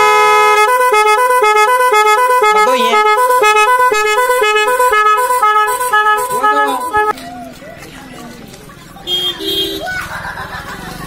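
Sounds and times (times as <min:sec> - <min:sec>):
musical motorcycle horn: 0:00.0 - 0:07.1, 0:09.1 - 0:09.8.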